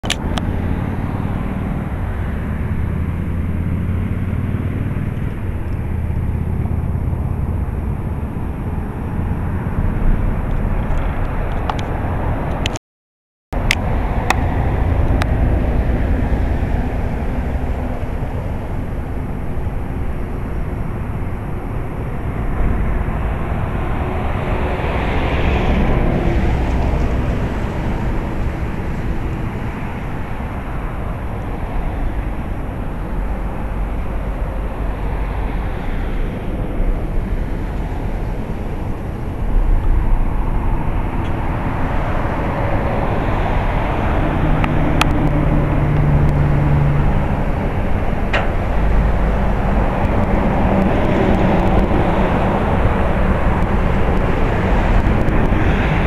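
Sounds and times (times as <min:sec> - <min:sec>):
outdoor rumble and hiss: 0:13.6 - 0:56.0.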